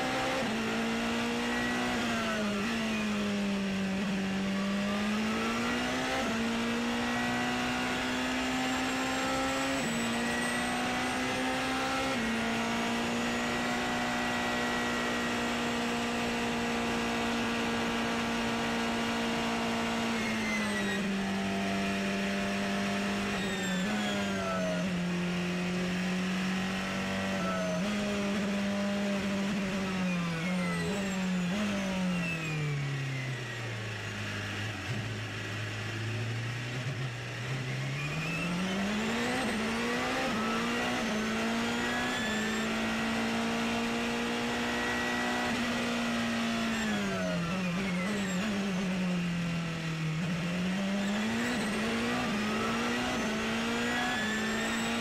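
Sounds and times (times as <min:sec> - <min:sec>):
racing car engine shifting gears: 0:49.8 - 0:55.0.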